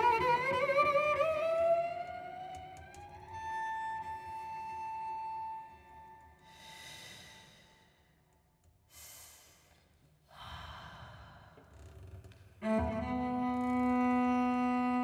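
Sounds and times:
cello long bowed note: 12.6s - 15.0s.

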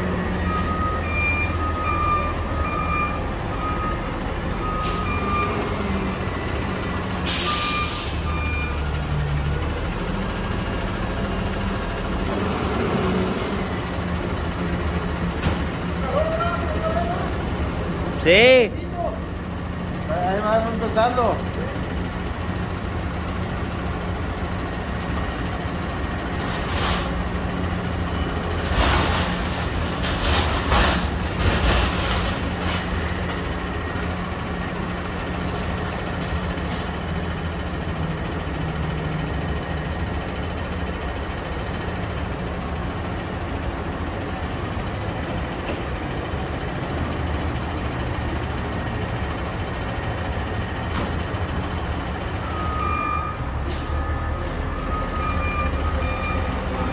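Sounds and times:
garbage truck engine idling: 0.0s - 52.7s
air brake hisses: 7.1s - 8.3s, 53.6s - 54.8s.

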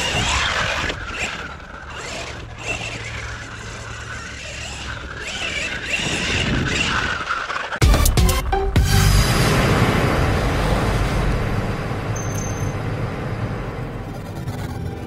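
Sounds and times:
toy car motor whine: 0.0s - 7.8s
tyres churning dirt: 0.0s - 7.8s.

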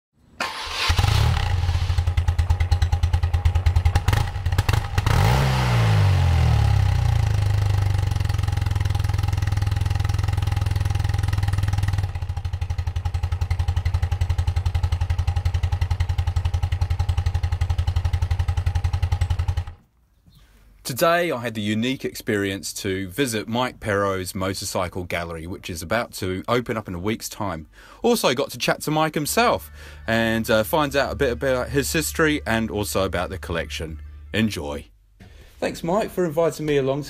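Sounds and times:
motorcycle engine idling: 1.3s - 19.8s.

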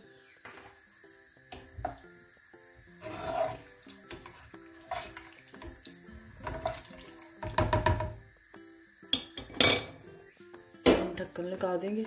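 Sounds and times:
soft background music: 0.0s - 12.0s
spatula stirring liquid: 3.0s - 8.1s
spatula knocking on metal pot: 7.4s - 8.3s.

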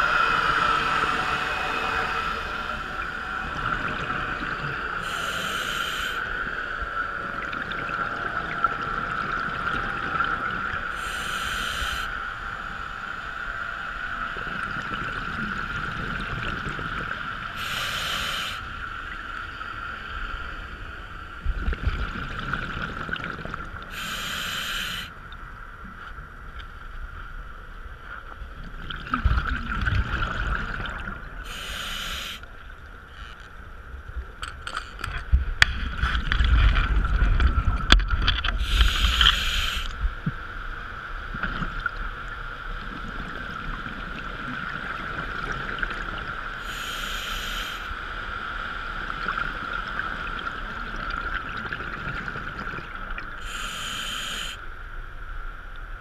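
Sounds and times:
steady high-pitched hum: 0.0s - 56.0s
diver breathing through regulator: 5.0s - 6.3s, 11.0s - 12.2s, 17.6s - 18.7s, 23.9s - 25.1s, 31.4s - 32.4s, 38.6s - 40.0s, 46.6s - 47.9s, 53.4s - 54.6s
low bubbling rumbles: 35.2s - 39.3s.

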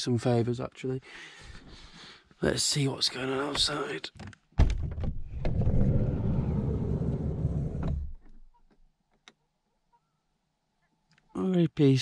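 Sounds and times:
sliding door rumbling: 5.2s - 8.3s.

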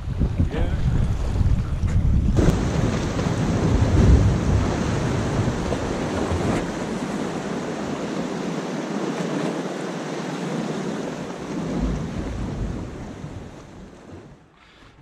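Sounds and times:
wind buffeting the microphone: 0.0s - 9.8s
sea surf washing against rocks: 0.0s - 14.6s.

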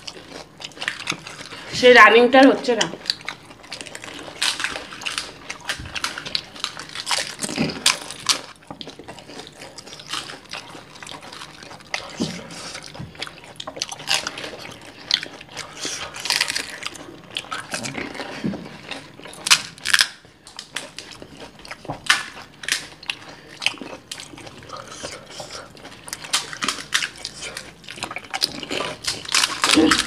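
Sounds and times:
chewing: 0.0s - 1.8s, 2.8s - 30.0s
crisp shells crunching: 3.2s - 8.6s, 16.1s - 17.0s, 19.3s - 21.0s, 26.0s - 30.0s.

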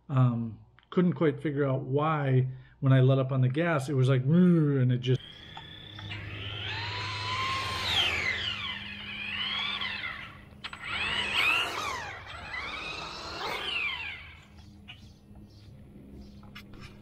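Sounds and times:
rc truck electric motor whining: 5.2s - 15.1s.

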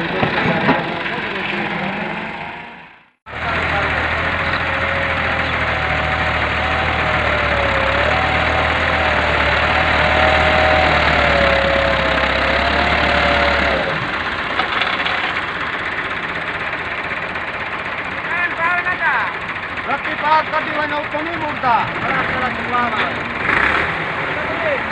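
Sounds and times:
wavering engine whine: 0.0s - 14.5s
tractor diesel engine running: 0.0s - 24.9s.

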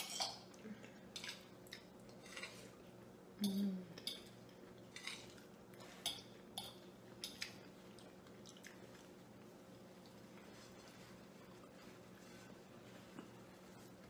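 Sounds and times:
faint steady hum: 0.0s - 14.0s
chewing: 0.1s - 2.8s, 4.0s - 12.2s.

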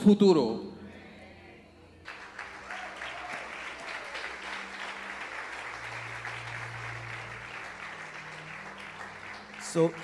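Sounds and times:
congregation applauding: 2.0s - 10.0s.

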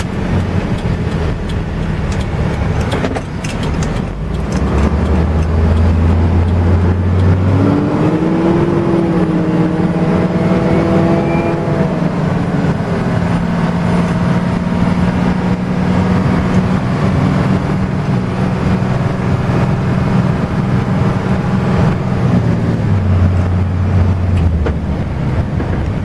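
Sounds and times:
road noise: 0.0s - 26.0s
truck engine running: 0.0s - 26.0s.

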